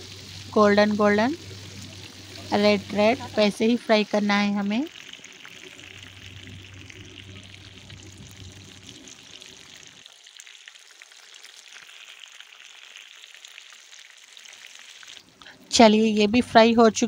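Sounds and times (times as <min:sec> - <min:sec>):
low background hum: 0:00.0 - 0:10.0, 0:15.1 - 0:17.0
fish frying in hot oil: 0:00.0 - 0:17.0.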